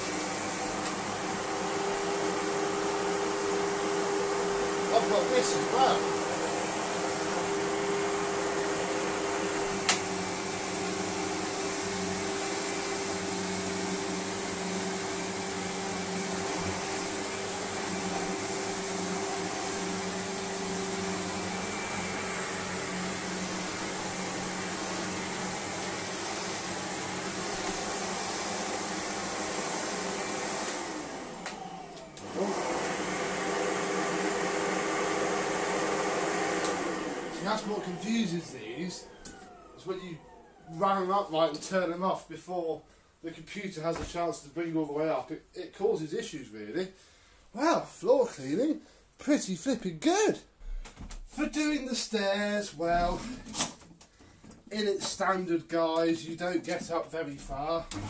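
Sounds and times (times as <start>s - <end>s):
vacuum cleaner running on rug: 0.0s - 41.3s, 52.8s - 53.6s, 57.4s - 58.0s.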